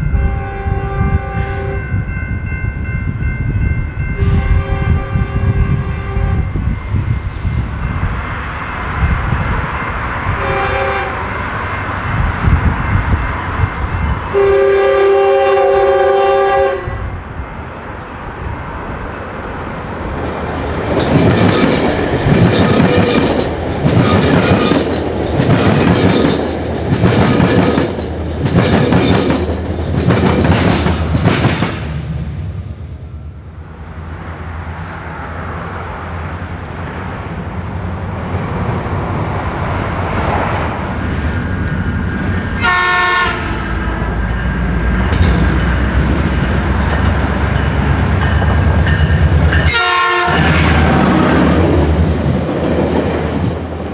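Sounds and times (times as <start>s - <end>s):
train horn blast: 0.0s - 1.9s, 4.2s - 6.6s, 10.3s - 11.5s, 14.3s - 17.2s, 42.6s - 43.7s, 49.6s - 51.6s
diesel locomotive rumble: 0.0s - 53.9s
train wheels clattering: 20.5s - 32.3s, 43.7s - 53.9s.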